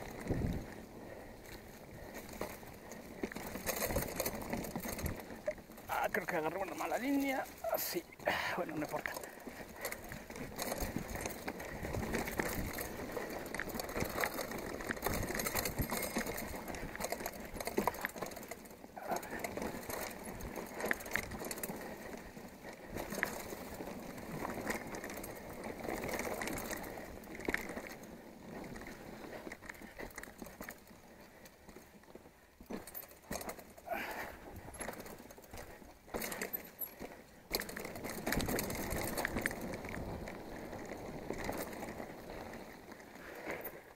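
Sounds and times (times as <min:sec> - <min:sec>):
bike rattling over bumps: 0:00.0 - 0:43.9
bike tyres on loose dirt: 0:00.0 - 0:43.9.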